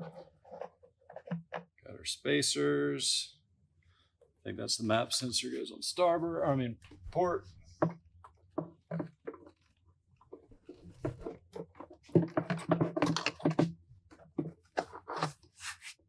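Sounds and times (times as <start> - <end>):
plastic scrapes creaks and clunks: 0.0 - 1.8, 7.7 - 15.8.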